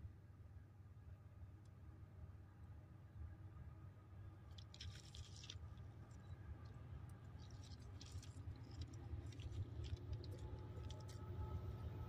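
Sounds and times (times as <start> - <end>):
small crackling clicks: 7.4 - 11.2.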